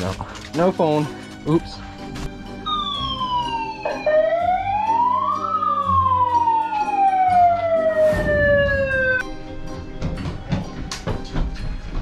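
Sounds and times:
siren wailing: 2.6s - 9.2s
brief rush of noise: 8.0s - 9.2s.

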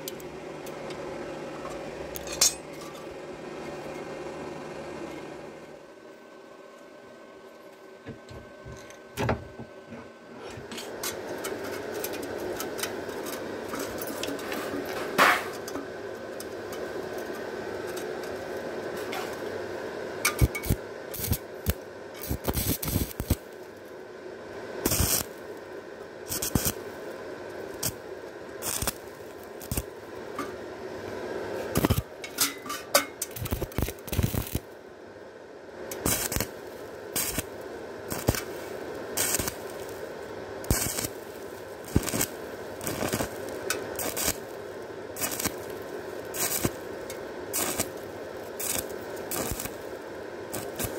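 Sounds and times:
steady background hum: 0.0s - 50.9s
welding arc crackling: 11.0s - 24.0s, 24.7s - 34.8s, 35.8s - 50.9s.

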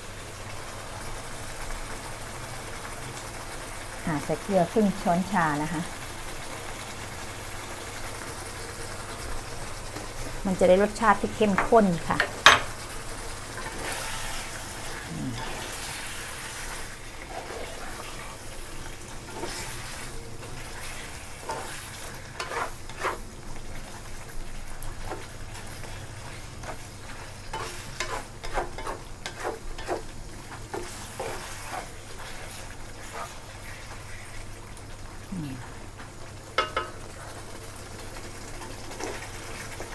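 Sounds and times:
pork sizzling in a pan: 0.0s - 39.9s
spatula scraping a pan: 13.5s - 23.4s, 25.0s - 34.4s.

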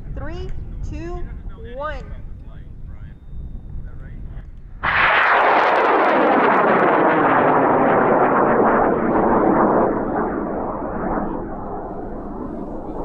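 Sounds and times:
rocket motor roaring: 4.8s - 13.0s.

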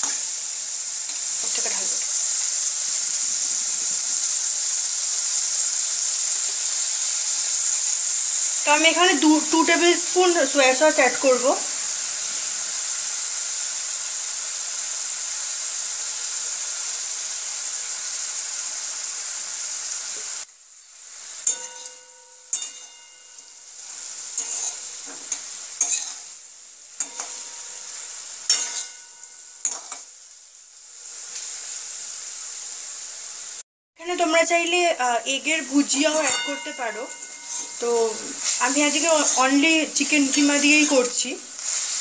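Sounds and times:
stir-fry sizzling in a wok: 0.0s - 42.0s
metal spatula scraping a wok: 21.2s - 26.4s, 27.0s - 30.1s, 35.9s - 42.0s.

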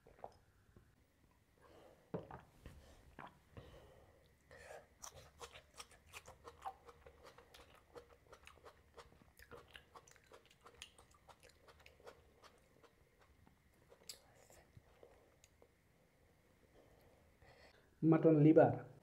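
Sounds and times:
chewing raw salad: 4.8s - 15.6s.

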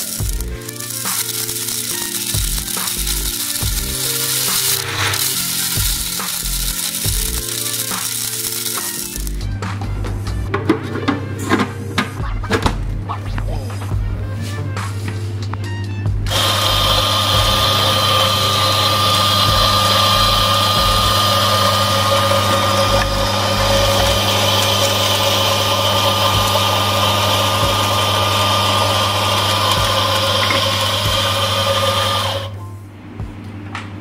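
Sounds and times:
coffee grinder whining: 0.0s - 9.6s, 16.3s - 32.6s.

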